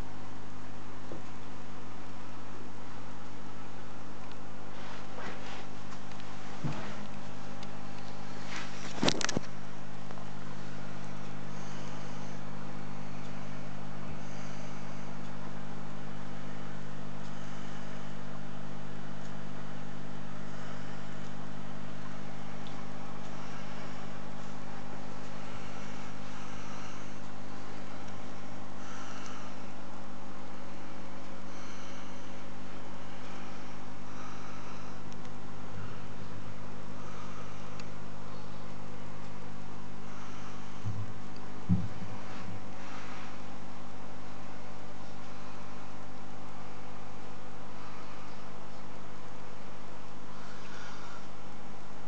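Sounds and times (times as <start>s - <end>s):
aquarium pump humming: 0.0s - 52.0s.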